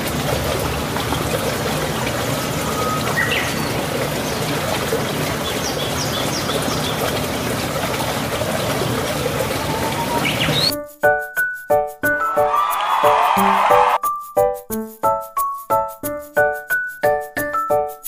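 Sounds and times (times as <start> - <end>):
heavy rain on water and grass: 0.0 - 10.7.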